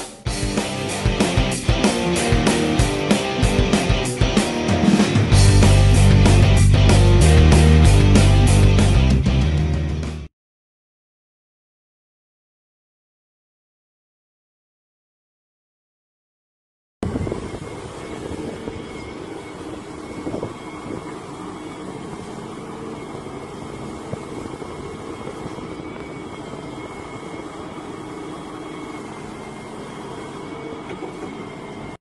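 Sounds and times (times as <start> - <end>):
excavator diesel engine running: 0.3 - 9.5, 17.1 - 32.0
thin high hydraulic whine: 17.0 - 32.0.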